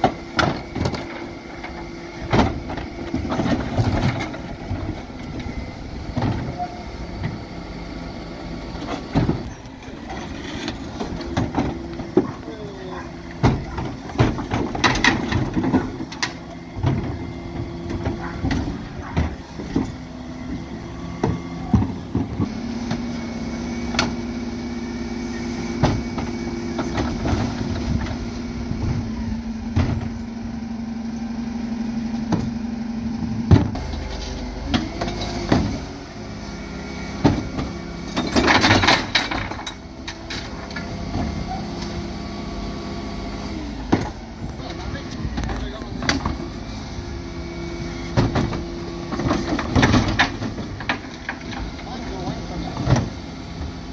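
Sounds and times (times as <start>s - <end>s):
diesel engine running: 0.0s - 53.9s
bins clanking against lift: 8.7s - 23.1s, 25.3s - 30.4s, 37.1s - 42.3s, 43.6s - 53.8s.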